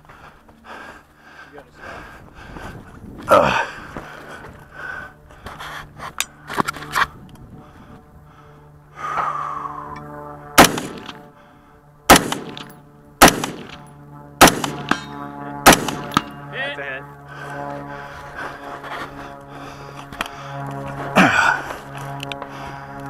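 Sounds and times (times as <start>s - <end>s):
rifle shots: 10.6s - 11.2s, 12.1s - 16.4s.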